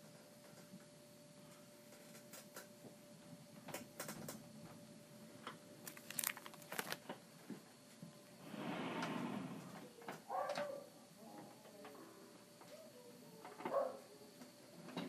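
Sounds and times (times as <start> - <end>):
plastic sleeve pages crinkling: 5.8 - 7.2.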